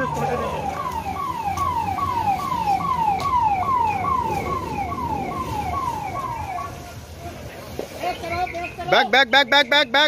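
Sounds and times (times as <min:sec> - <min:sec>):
fire engine siren wailing: 0:00.0 - 0:07.4.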